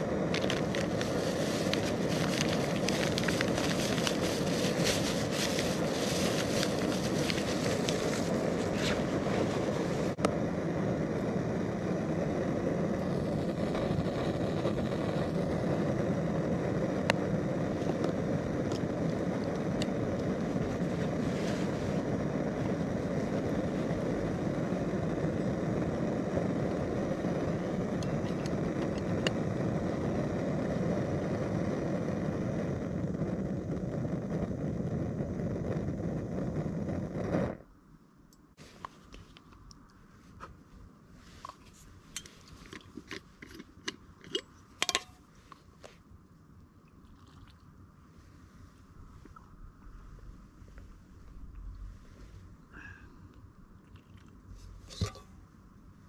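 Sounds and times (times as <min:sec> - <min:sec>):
camping stove burner running: 0:00.0 - 0:37.6, 0:41.3 - 0:45.3, 0:54.7 - 0:55.5
packet crinkling: 0:00.3 - 0:09.6.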